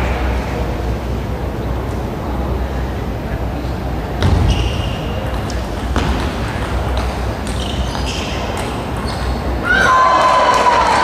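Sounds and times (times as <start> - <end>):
crowd reacting: 9.6 - 11.0.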